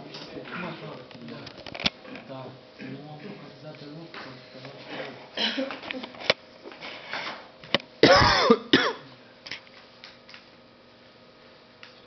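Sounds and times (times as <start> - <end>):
person clearing throat: 8.0 - 9.1.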